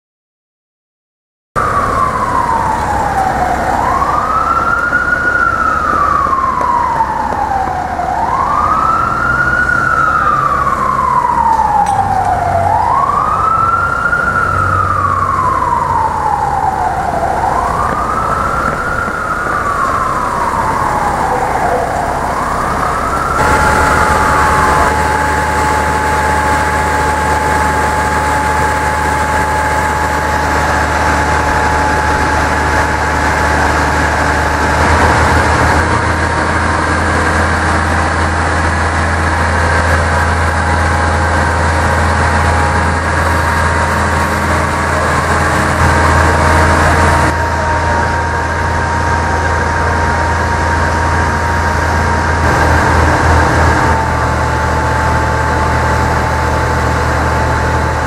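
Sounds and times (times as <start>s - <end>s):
fire engine siren wailing: 1.6s - 58.0s
truck engine idling: 1.6s - 58.0s.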